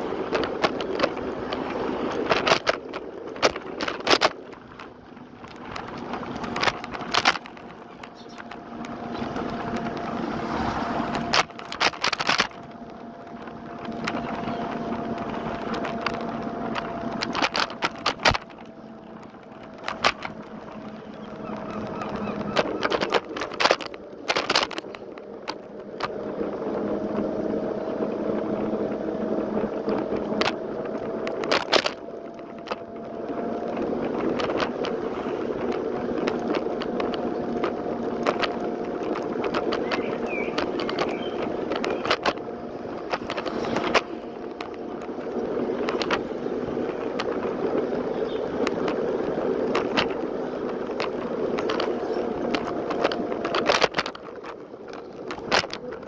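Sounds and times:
electric scooter whine: 0.0s - 56.0s
knocks and rattles over bumps: 0.0s - 56.0s
wheel and road noise: 0.0s - 56.0s.

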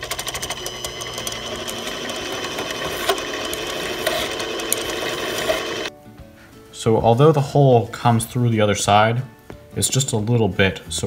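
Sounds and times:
lathe running: 0.0s - 5.9s
file scraping metal: 2.1s - 5.9s.

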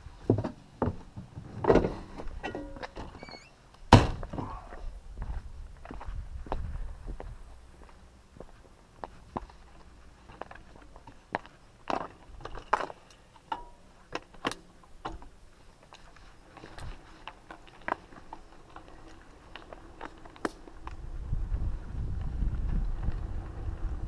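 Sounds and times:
mountain bike being handled: 9.4s - 21.0s.

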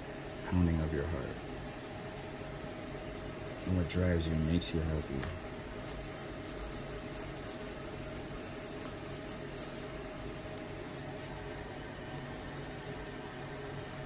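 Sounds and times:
faint even hum: 0.0s - 14.0s
room hiss: 2.6s - 10.0s.

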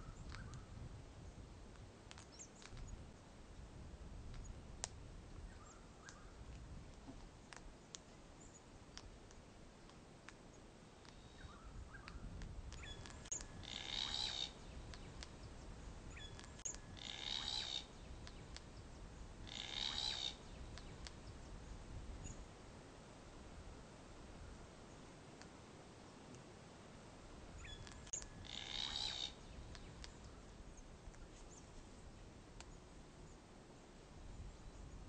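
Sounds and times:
cockatoo calling: 12.8s - 14.6s, 16.2s - 18.4s, 19.4s - 20.5s, 27.6s - 29.9s.

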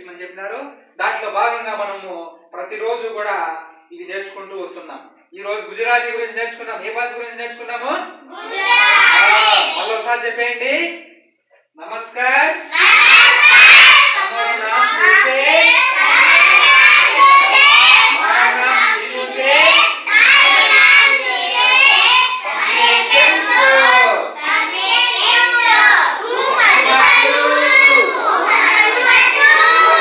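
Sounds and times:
children chanting in unison: 8.3s - 10.1s, 12.6s - 30.0s.

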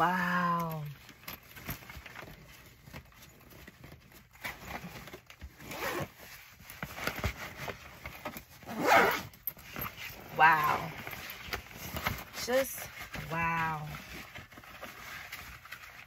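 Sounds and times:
rustling and knocks inside bag: 0.0s - 16.0s
zipper on fabric bag: 4.4s - 14.3s.

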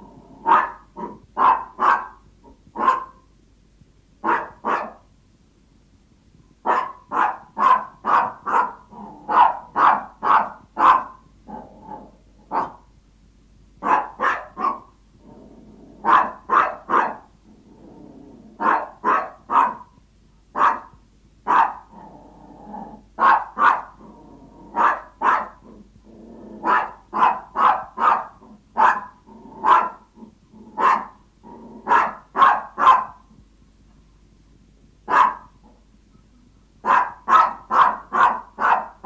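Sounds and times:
small dog barking: 0.4s - 3.2s, 4.2s - 5.1s, 6.6s - 12.9s, 13.8s - 15.0s, 16.0s - 17.3s, 18.6s - 22.0s, 23.2s - 24.0s, 24.7s - 25.7s, 26.6s - 30.1s, 30.8s - 31.2s, 31.8s - 33.3s, 35.1s - 35.8s, 36.8s - 39.0s.

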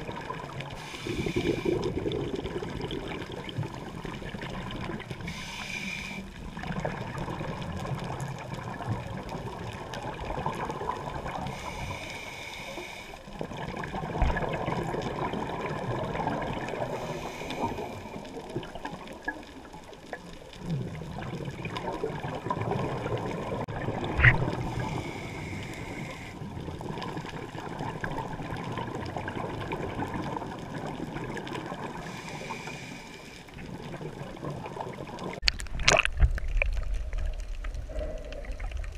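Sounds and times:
bubbles gurgling: 0.0s - 5.3s, 6.4s - 11.6s, 13.3s - 32.5s, 33.5s - 38.9s
regulator inhalation hiss: 0.8s - 1.9s, 5.2s - 6.4s, 11.5s - 13.2s, 16.9s - 18.2s, 24.7s - 26.5s, 32.0s - 33.4s.

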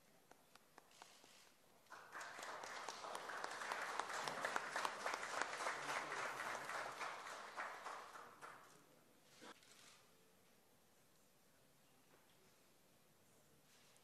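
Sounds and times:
audience applauding: 1.9s - 8.8s.

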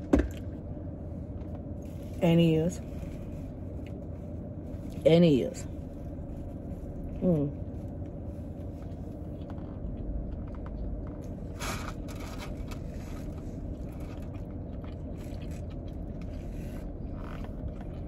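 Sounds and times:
low hum: 0.0s - 18.0s
person biting and chewing: 11.2s - 18.0s.

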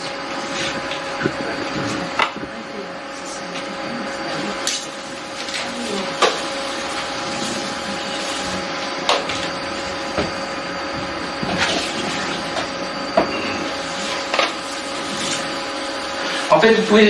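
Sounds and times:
kitchen machinery humming: 0.0s - 17.0s.

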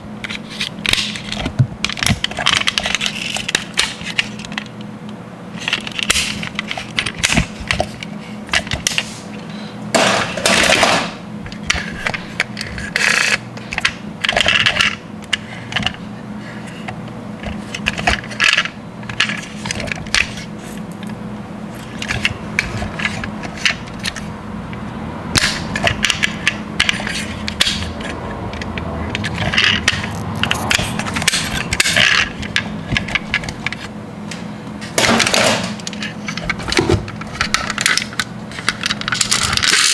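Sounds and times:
toy cars clattering: 25.4s - 33.9s, 35.0s - 39.9s
metal toy cars clicking and clinking: 37.4s - 39.9s.

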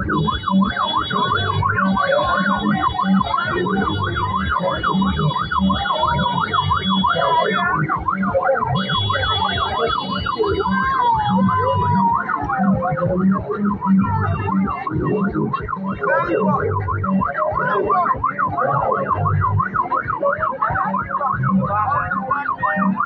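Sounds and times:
crowd noise: 0.0s - 23.0s
electronic siren yelping: 0.0s - 23.0s.

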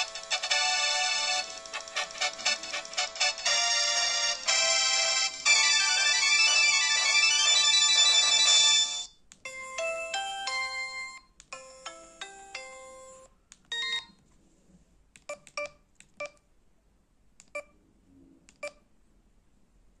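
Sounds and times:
quiet keypad beeps: 13.7s - 14.2s, 15.2s - 16.4s, 17.4s - 17.8s, 18.5s - 18.8s.

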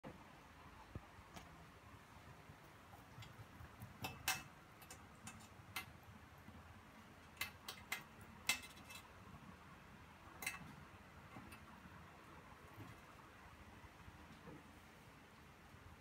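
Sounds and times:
faint room hiss: 0.0s - 16.0s
sharp light clicks and taps: 2.9s - 6.0s, 7.2s - 9.1s.

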